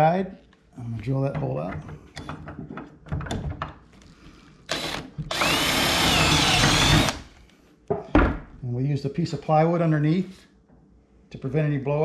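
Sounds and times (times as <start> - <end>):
drill boring through wood: 4.7 - 7.3.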